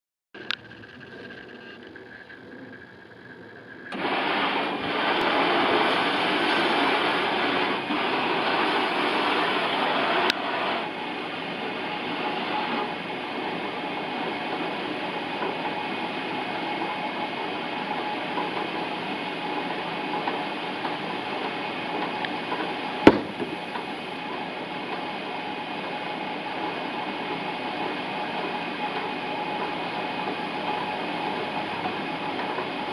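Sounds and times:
belt conveyor running: 0:00.4 - 0:32.9
loud knock: 0:23.1 - 0:23.8
sharp click: 0:23.1 - 0:23.8.

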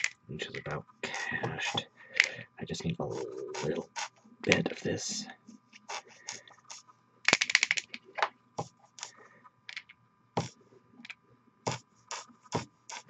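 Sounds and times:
paint bottle sputtering: 0:01.0 - 0:04.8, 0:05.8 - 0:07.6, 0:11.7 - 0:13.0.

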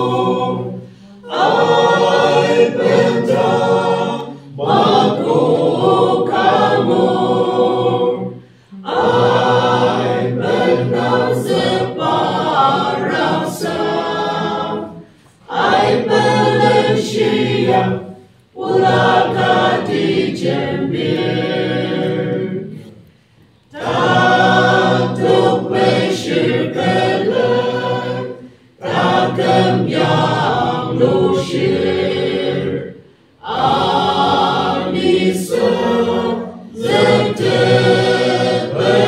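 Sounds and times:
mixed choir singing unaccompanied: 0:00.0 - 0:23.1, 0:23.7 - 0:39.0.

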